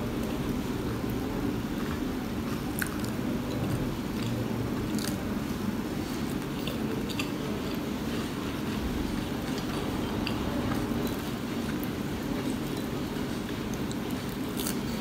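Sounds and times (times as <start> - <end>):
chewing crispy food: 0.0 - 15.0.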